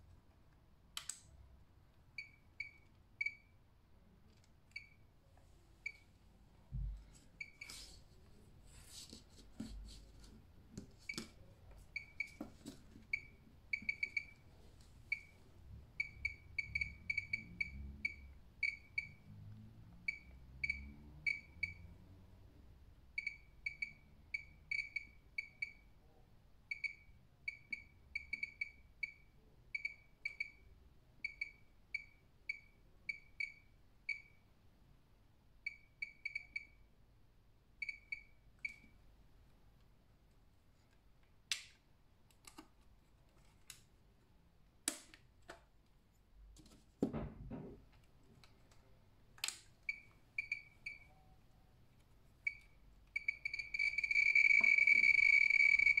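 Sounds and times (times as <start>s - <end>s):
radiation meter beeping: 11.9s - 12.4s, 13.1s - 14.4s, 16.0s - 19.3s, 23.2s - 25.8s, 35.7s - 36.8s, 37.8s - 39.0s, 49.9s - 51.2s, 52.4s - 56.0s.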